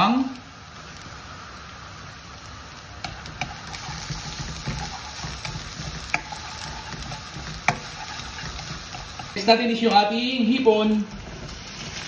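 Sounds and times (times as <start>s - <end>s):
onion and garlic sizzling in oil: 0.0s - 12.0s
wooden spatula knocking on pan: 3.0s - 9.3s.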